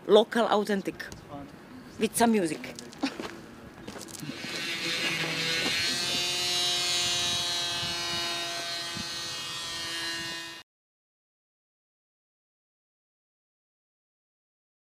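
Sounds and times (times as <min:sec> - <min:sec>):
power tool whining: 0:04.1 - 0:10.6.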